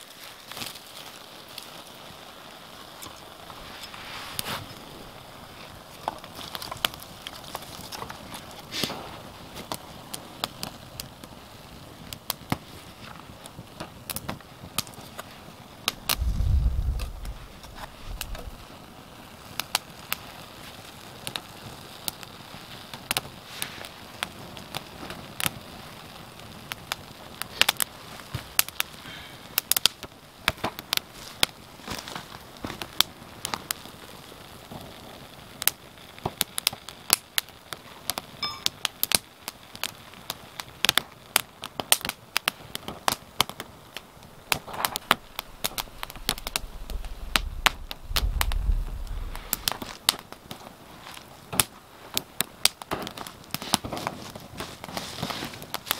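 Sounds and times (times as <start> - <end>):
wood fire crackling and popping: 0.0 - 55.9
low rumble: 16.1 - 18.7, 45.2 - 49.9.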